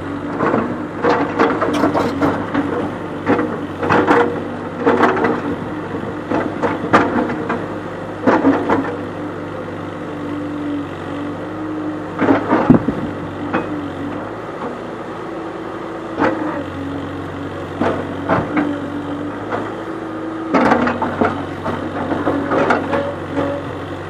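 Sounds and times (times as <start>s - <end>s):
diesel engine droning: 0.0s - 24.0s
bucket clanking against boulders: 1.5s - 2.5s.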